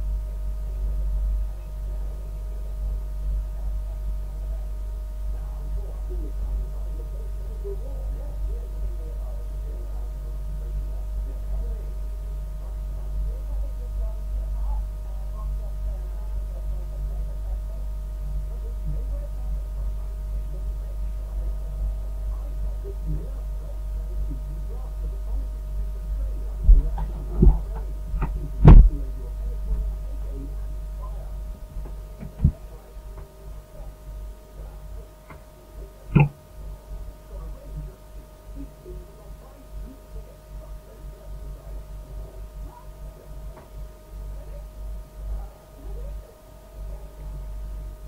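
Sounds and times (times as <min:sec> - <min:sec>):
faint steady tones: 0:00.0 - 0:48.0
low electrical hum: 0:00.0 - 0:48.0
short thumps: 0:26.6 - 0:29.0, 0:31.7 - 0:32.6, 0:36.1 - 0:36.4.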